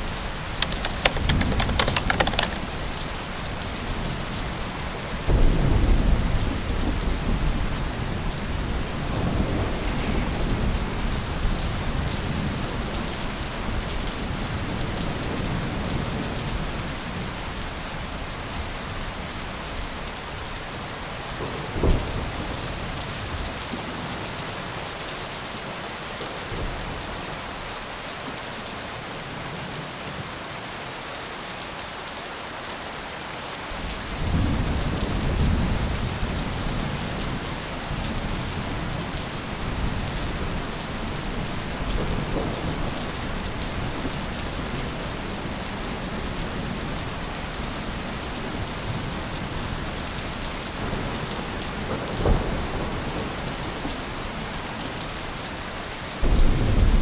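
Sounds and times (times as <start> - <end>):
heavy rain: 0.0 - 57.0
low rumble of thunder: 5.2 - 13.0, 33.8 - 45.6, 56.2 - 57.0.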